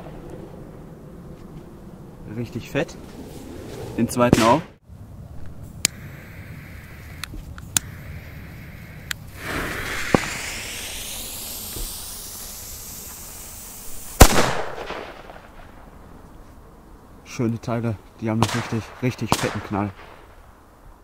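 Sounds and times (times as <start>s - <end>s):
fuse hissing: 5.8s - 14.6s
small clicks: 7.0s - 8.0s
firecracker bang with echo: 14.2s - 15.8s.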